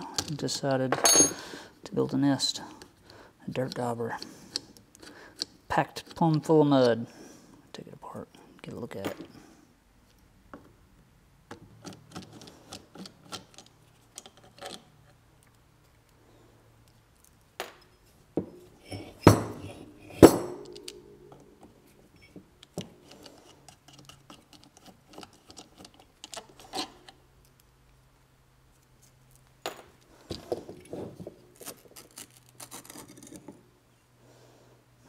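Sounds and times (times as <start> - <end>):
metal clinks: 1.0 - 1.4
small parts tapping and rattling: 16.8 - 27.7.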